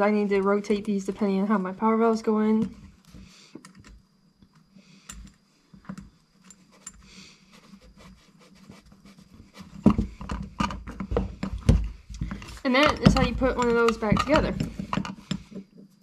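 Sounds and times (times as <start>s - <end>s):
small metal clicks and scrapes: 12.3s - 15.8s.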